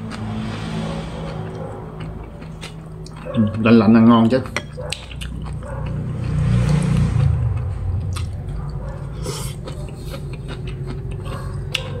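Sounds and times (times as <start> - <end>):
wet chewing with crisp pops: 2.0 - 6.8, 8.1 - 12.0.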